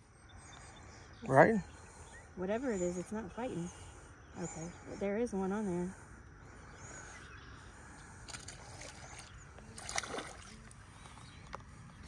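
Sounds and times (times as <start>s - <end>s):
fish splashing in water: 8.2s - 11.2s.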